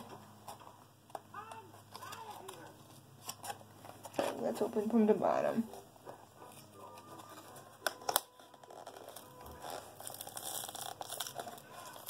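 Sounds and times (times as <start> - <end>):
foil bag crinkling: 7.2 - 12.0.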